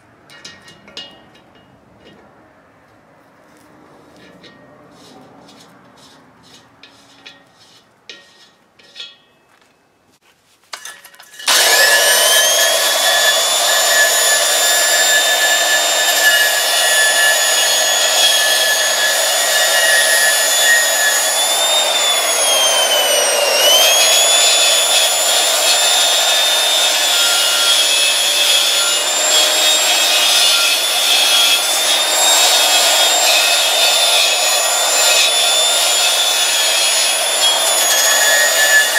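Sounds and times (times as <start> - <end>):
angle grinder grinding metal: 4.1 - 9.2, 10.8 - 38.9.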